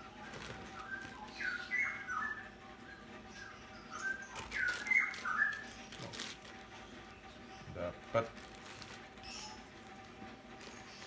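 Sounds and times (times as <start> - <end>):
songbird chirps and whistles: 0.0 - 7.8
plastic bag crinkling: 0.2 - 1.3, 4.4 - 6.7, 8.2 - 9.2.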